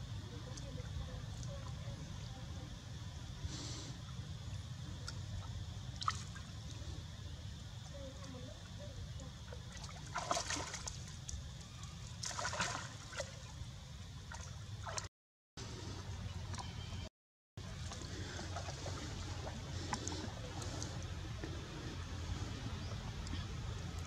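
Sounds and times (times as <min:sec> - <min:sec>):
water sloshing and splashing: 0:05.0 - 0:07.0, 0:07.7 - 0:15.1, 0:16.4 - 0:24.0.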